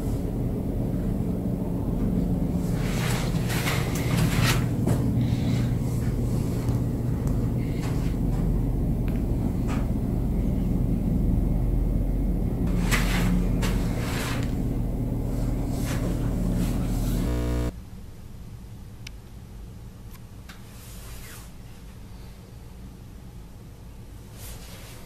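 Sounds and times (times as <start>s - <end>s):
steady low rumble: 0.0s - 17.8s.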